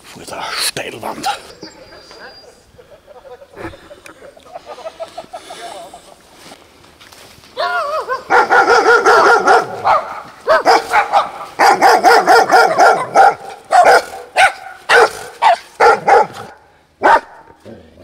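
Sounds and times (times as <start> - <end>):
dog barking: 7.6 - 17.6.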